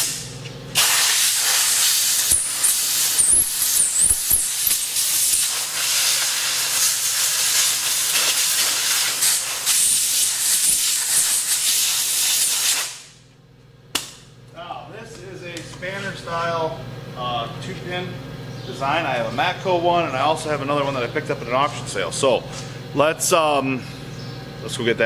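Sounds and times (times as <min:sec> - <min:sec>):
compressed air hissing: 0:00.8 - 0:13.1.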